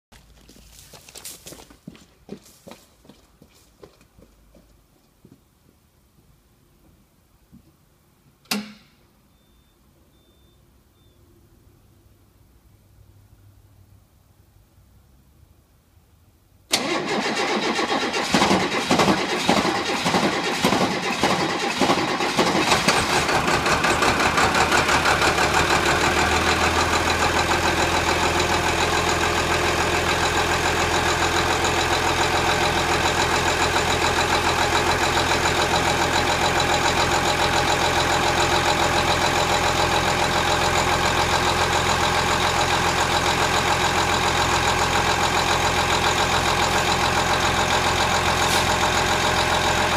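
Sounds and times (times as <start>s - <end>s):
diesel bus engine idling: 16.7s - 49.9s
engine knocking unevenly: 18.0s - 49.9s.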